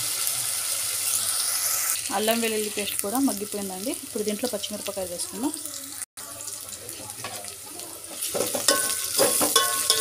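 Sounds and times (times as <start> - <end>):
onions sizzling in hot oil: 0.0 - 10.0
spoon scraping a pot: 8.1 - 10.0.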